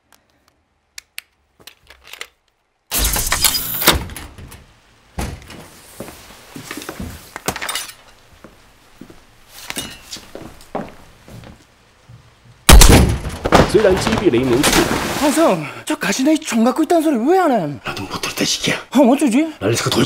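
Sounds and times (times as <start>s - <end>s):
glass smashing: 12.7s - 15.4s
sharp crashes and thumps: 12.7s - 15.4s.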